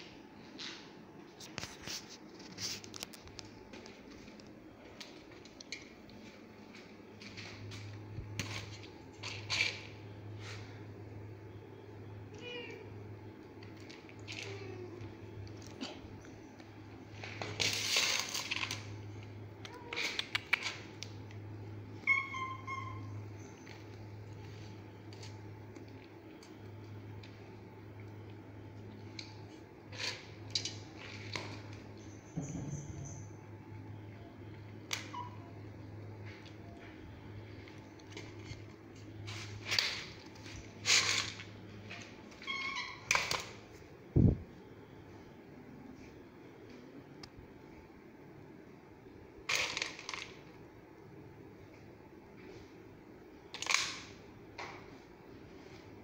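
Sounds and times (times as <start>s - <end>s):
steady low hum: 0.0s - 56.0s
rustling noise: 0.4s - 5.4s.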